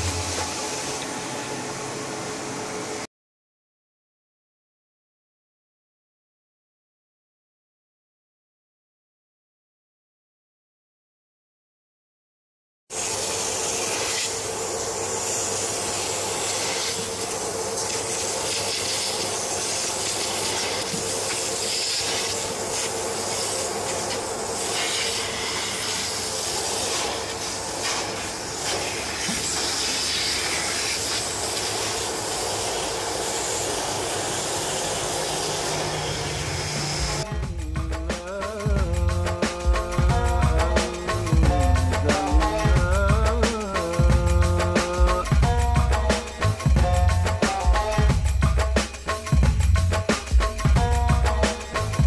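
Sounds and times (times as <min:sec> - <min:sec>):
vacuum rushing hiss: 0:00.0 - 0:03.1, 0:12.9 - 0:42.8.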